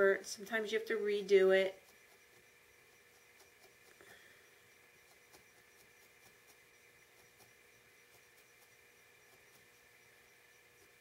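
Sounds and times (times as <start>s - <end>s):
felting needle stabbing wool: 4.8s - 9.9s.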